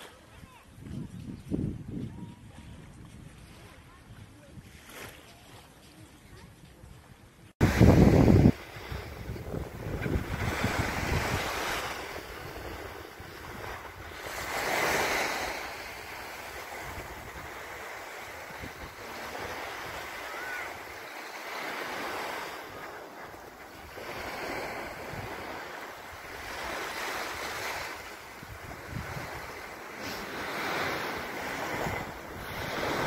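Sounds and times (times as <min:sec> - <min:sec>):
small waves breaking on beach: 0:07.6 - 0:33.0.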